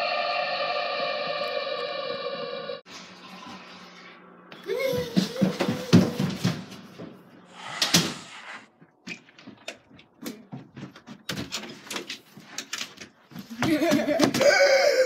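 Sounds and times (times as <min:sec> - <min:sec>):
person crying out: 0:14.4 - 0:15.0.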